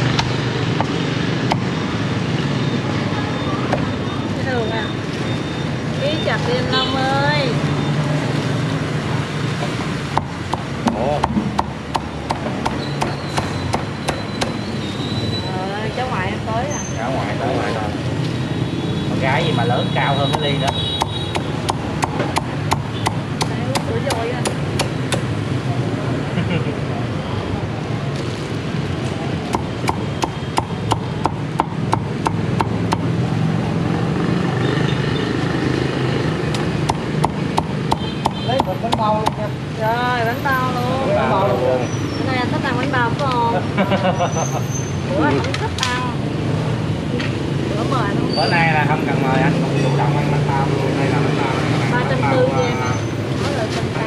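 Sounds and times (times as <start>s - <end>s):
cleaver chopping on wooden block: 10.1s - 14.6s, 20.3s - 25.3s, 29.5s - 33.1s, 36.6s - 39.4s.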